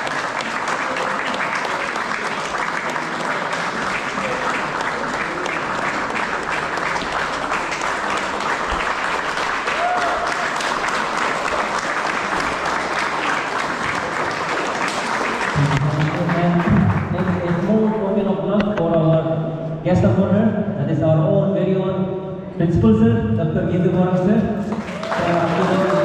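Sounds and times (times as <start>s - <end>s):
audience applauding: 0.0s - 18.1s, 24.6s - 26.0s.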